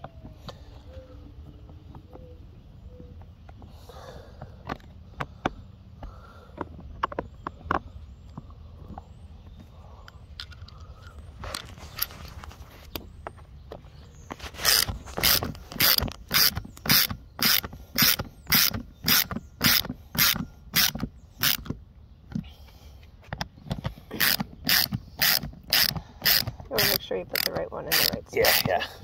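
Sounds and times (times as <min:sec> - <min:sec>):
ratchet wrench clicking: 0:14.6 - 0:21.7, 0:24.1 - 0:28.7.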